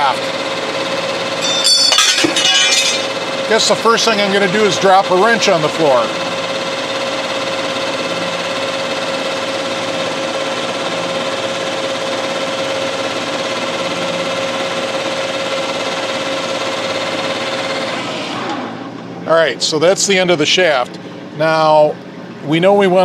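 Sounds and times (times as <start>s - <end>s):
metal lathe running: 0.0s - 19.9s
lathe whine: 3.0s - 19.2s.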